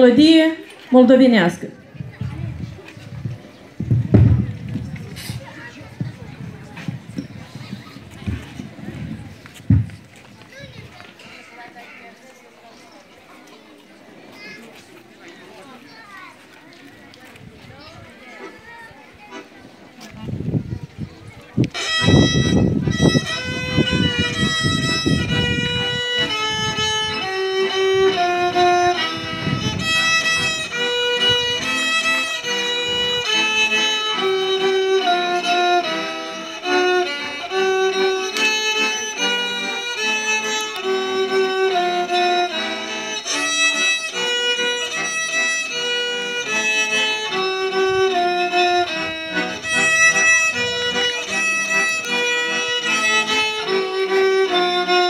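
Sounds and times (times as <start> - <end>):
piano accordion: 18.2 - 19.8, 21.6 - 55.0
violin melody: 21.6 - 55.0.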